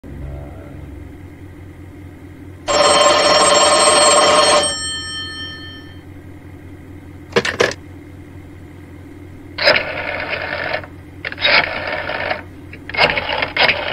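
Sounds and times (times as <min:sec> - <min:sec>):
telephone bell ringing: 0:02.7 - 0:06.0.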